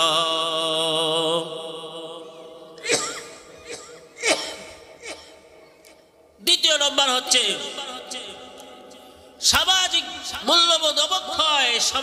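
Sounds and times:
man chanting over loudspeaker: 0.0s - 2.9s, 6.4s - 12.0s.

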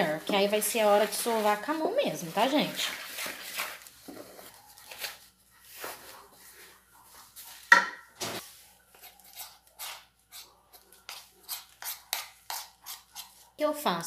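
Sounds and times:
spoon scraping metal bowl: 9.0s - 13.4s.

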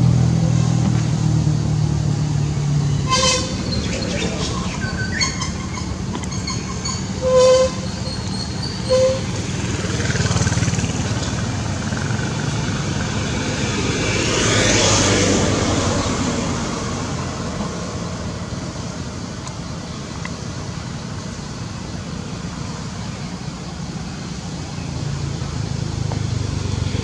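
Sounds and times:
road traffic rumbling: 0.0s - 27.0s
short horn toots: 3.1s - 3.6s
vehicle passing by: 9.0s - 18.9s.

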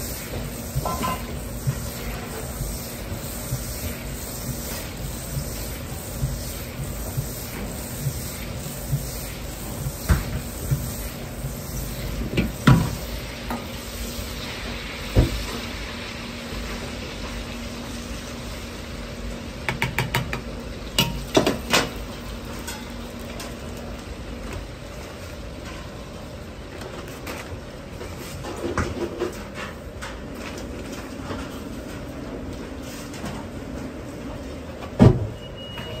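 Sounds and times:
butter sizzling in a wok: 0.0s - 19.6s.

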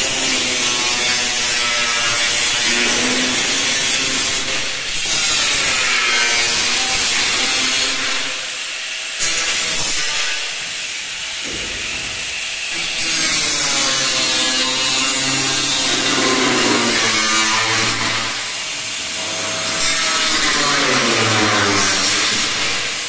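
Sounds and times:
angle grinder cutting steel sheet: 0.0s - 23.0s.

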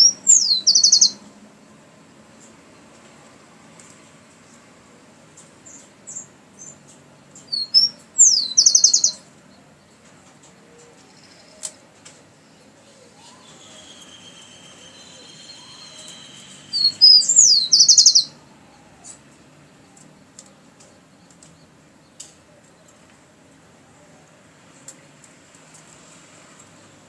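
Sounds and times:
sparrow singing: 0.0s - 2.9s, 5.3s - 23.1s.

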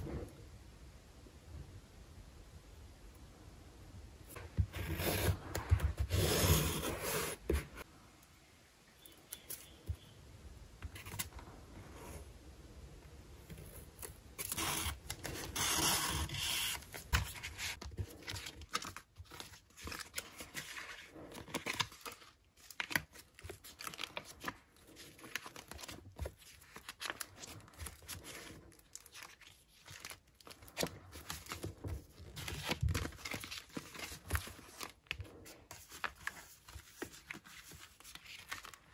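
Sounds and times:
plastic sticker sheets crinkling: 14.4s - 38.9s.

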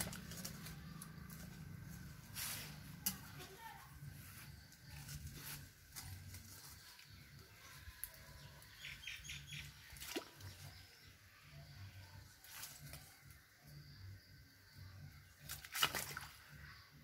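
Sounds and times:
bird chirps: 8.3s - 12.1s
hoe chopping into wet mud: 15.5s - 16.3s.

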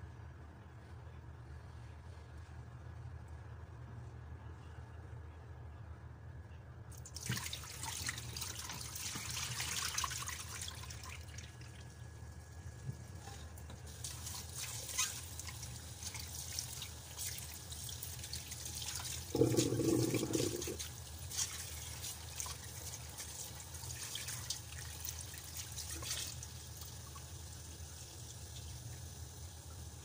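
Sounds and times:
tap water running into pot: 13.7s - 27.3s.

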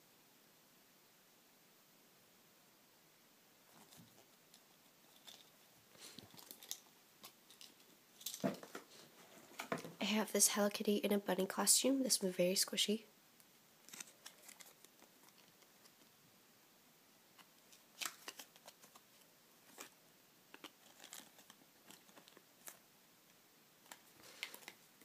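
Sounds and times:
hands handling foam toy: 3.7s - 10.0s, 13.8s - 16.1s, 17.3s - 22.8s, 23.8s - 25.0s.

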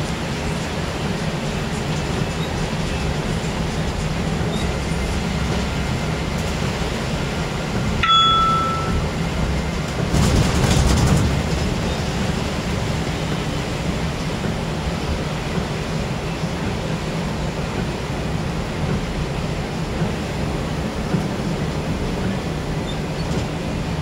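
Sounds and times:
short electronic chime: 8.0s - 9.2s.

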